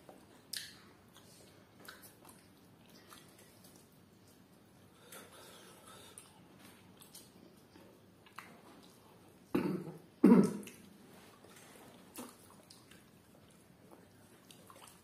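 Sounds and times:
eating clicks and smacks: 0:00.1 - 0:04.4, 0:06.1 - 0:09.0, 0:10.4 - 0:15.0.

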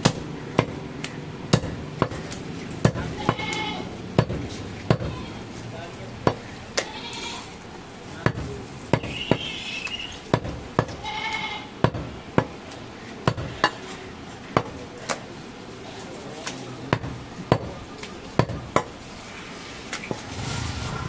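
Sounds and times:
knife chopping meat on wood: 0:00.0 - 0:03.6, 0:04.2 - 0:05.1, 0:08.2 - 0:09.5, 0:10.3 - 0:11.0, 0:16.9 - 0:17.7.

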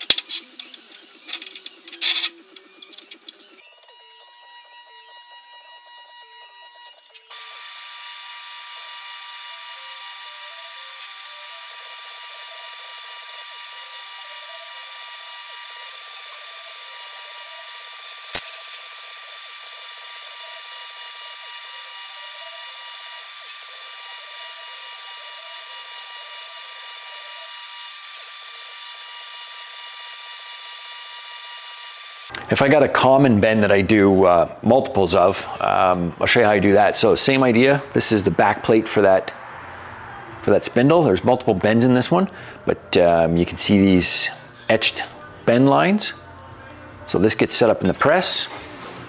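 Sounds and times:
welding arc hiss: 0:03.7 - 0:32.4
faint hum: 0:32.3 - 0:47.2.

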